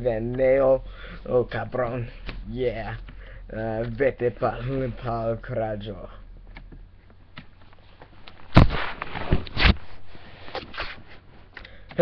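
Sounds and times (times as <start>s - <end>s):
short rustles: 7.6s - 11.5s.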